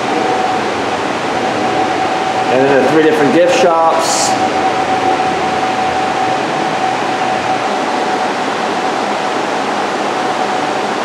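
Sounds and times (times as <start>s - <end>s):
ventilation unit rushing air and hum: 0.0s - 11.0s.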